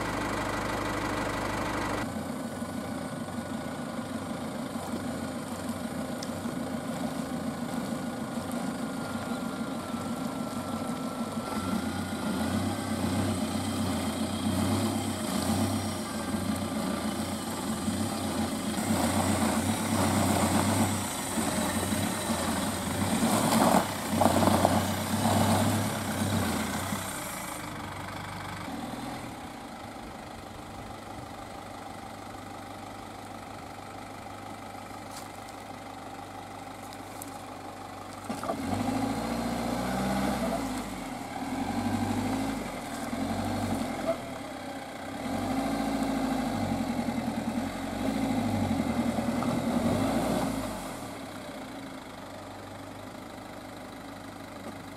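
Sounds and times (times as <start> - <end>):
van engine revving: 0.0 - 31.2, 38.2 - 53.6
wheels churning in mud: 4.7 - 28.8.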